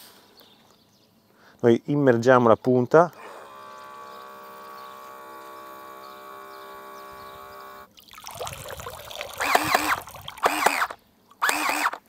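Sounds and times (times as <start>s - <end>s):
water gun pump humming: 3.1s - 12.0s
water splashing and trickling: 7.9s - 11.4s.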